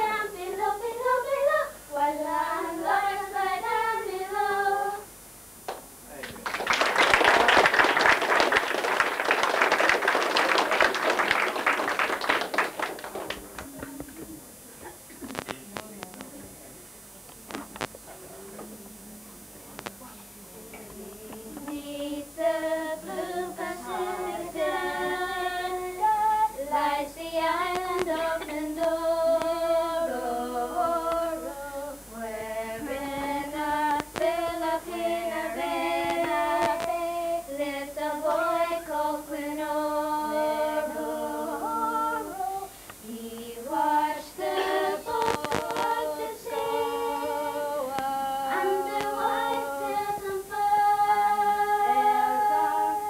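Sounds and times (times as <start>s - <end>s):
woman singing unaccompanied: 0.0s - 5.2s, 20.7s - 53.0s.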